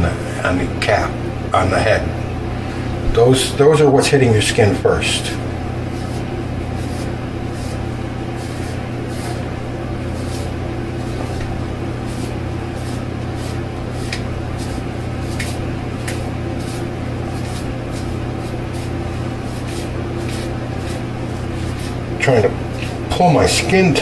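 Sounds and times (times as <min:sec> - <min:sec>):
steady low hum: 0:00.0 - 0:24.0
razor scraping across scalp: 0:05.9 - 0:23.1.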